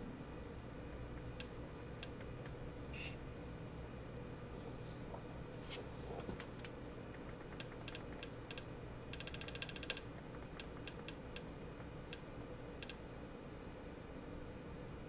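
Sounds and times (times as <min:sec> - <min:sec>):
faint hum: 0:00.0 - 0:15.0
menu scrolling clicks: 0:12.8 - 0:13.0.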